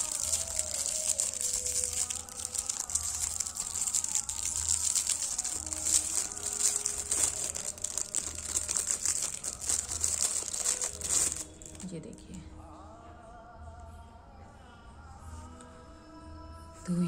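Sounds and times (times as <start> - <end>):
plastic packaging crinkling: 0.0 - 11.9.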